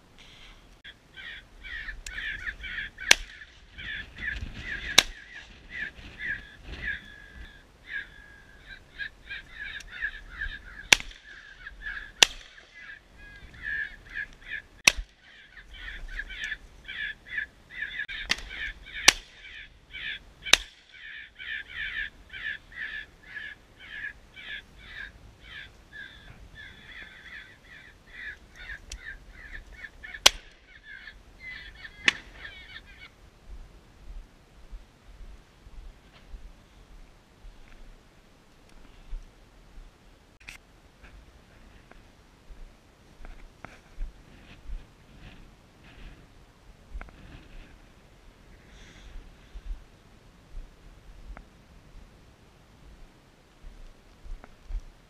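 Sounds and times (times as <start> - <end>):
crows cawing: 0.3 - 33.1
shotgun shots: 12.2 - 12.7.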